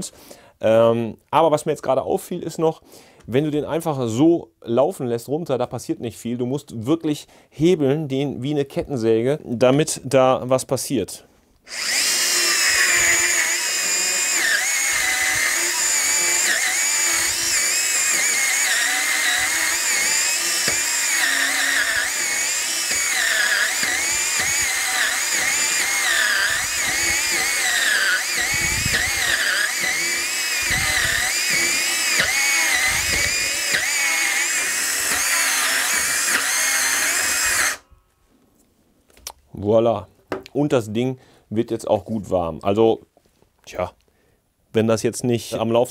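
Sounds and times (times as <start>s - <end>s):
saw motor whining: 11.7s - 37.9s.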